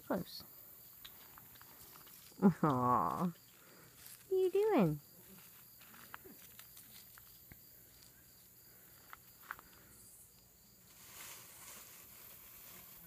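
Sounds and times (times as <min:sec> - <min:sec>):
paws rustling on gravel: 0:01.1 - 0:02.5, 0:03.2 - 0:09.9.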